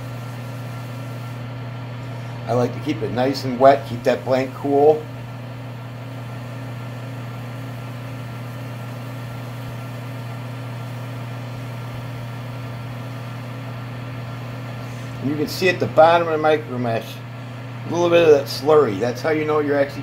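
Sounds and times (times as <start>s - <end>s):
lathe motor hum: 0.0s - 20.0s.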